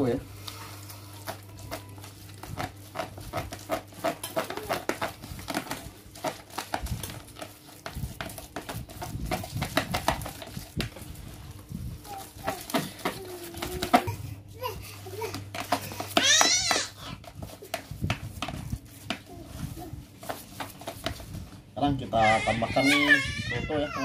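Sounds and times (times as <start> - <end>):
spoon scraping a can and bowl: 2.5 - 10.4.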